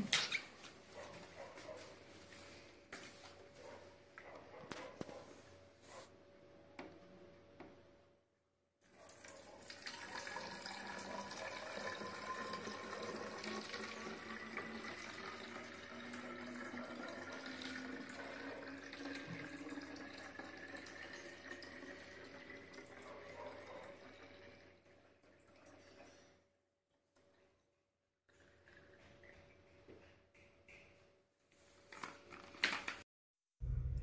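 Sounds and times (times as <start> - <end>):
water pouring into bottle: 9.6 - 22.8.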